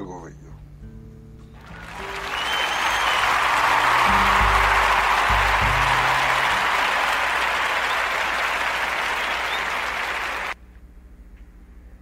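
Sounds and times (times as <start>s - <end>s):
applause: 1.6s - 10.6s.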